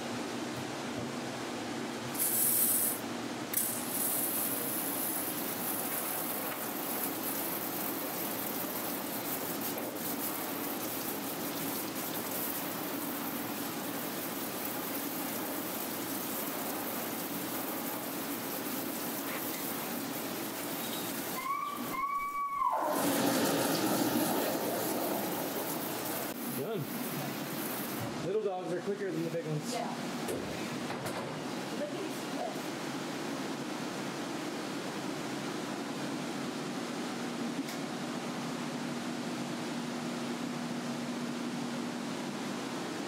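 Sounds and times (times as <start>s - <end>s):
hose water spraying: 2.1s - 22.0s, 22.8s - 28.1s.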